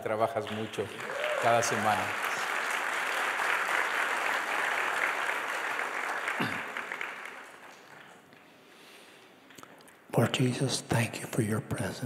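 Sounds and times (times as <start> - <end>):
congregation applauding: 0.0 - 8.5.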